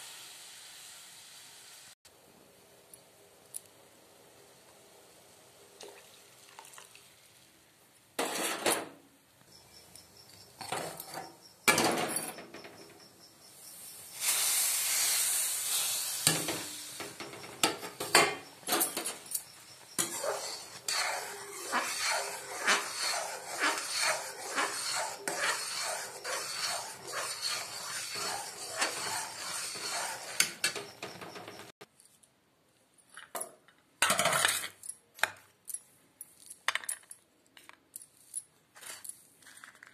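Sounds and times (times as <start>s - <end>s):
metal spoon scraping steel pan: 8.2s - 8.9s, 16.3s - 31.7s.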